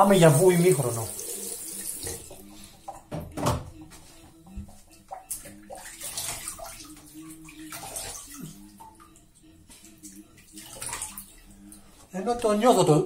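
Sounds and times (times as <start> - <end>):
water splashing in sink: 0.0 - 3.6, 4.6 - 9.2, 9.9 - 11.6.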